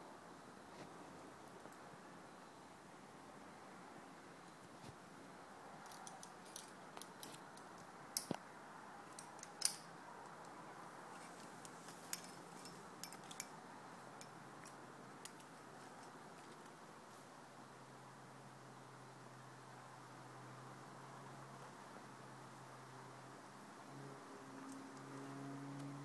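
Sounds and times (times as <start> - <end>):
metal climbing hardware clinking: 5.8 - 8.3, 9.0 - 9.9, 11.6 - 13.6, 14.2 - 16.6.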